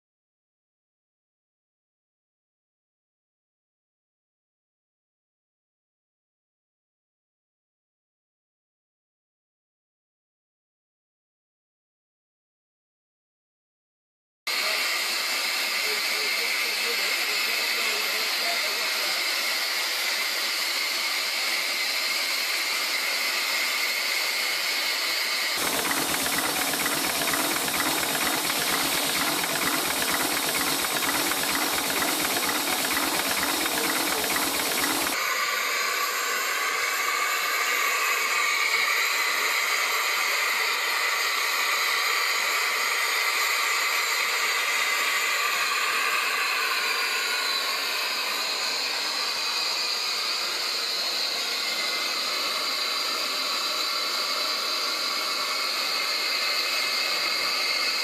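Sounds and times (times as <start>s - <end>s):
steam hissing: 14.5s - 58.0s.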